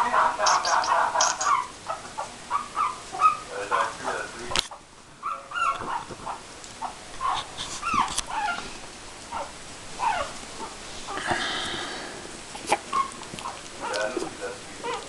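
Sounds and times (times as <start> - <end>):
puppies whimpering and yipping: 0.4 - 3.5, 5.2 - 8.6, 9.3 - 10.8, 12.6 - 14.2
sharp clicks: 0.5 - 1.5.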